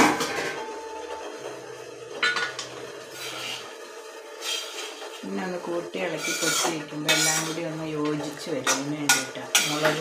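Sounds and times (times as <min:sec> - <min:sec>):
steel spatula scraping metal pan: 0:03.1 - 0:03.7, 0:04.4 - 0:05.2, 0:06.0 - 0:07.7, 0:08.4 - 0:10.0.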